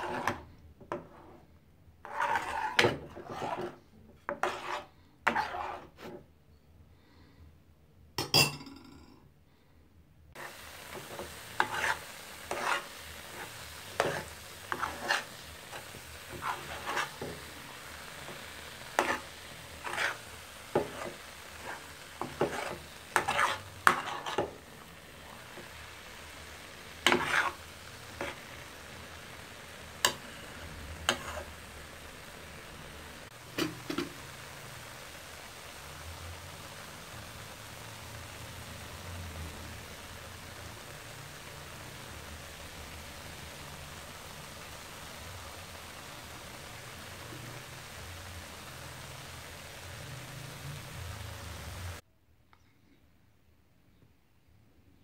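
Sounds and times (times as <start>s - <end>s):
frying sizzle: 0.0s - 1.4s, 2.0s - 6.2s, 10.3s - 52.0s
metal spoon scraping a pan: 0.0s - 6.3s, 10.4s - 34.2s.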